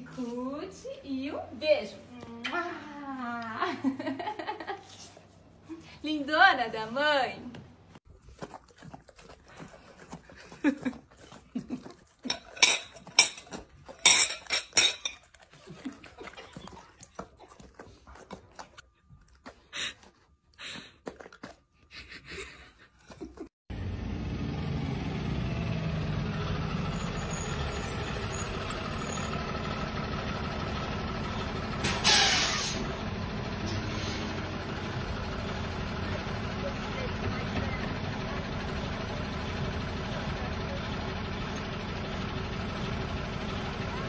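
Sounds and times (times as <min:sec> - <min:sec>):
dog eating: 0:08.1 - 0:21.9
vehicle engine rumble: 0:23.7 - 0:44.0
short loud hiss: 0:31.9 - 0:32.8.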